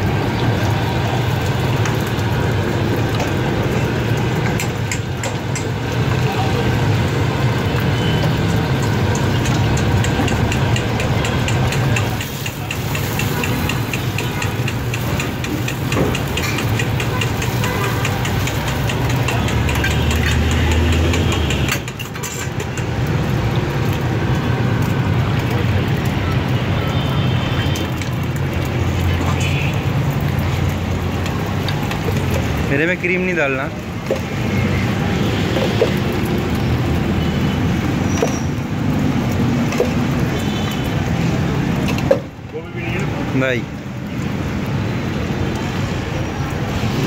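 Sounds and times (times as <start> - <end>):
street traffic rumble: 0.0 - 47.0
metal spatula tapping on griddle: 9.2 - 22.9.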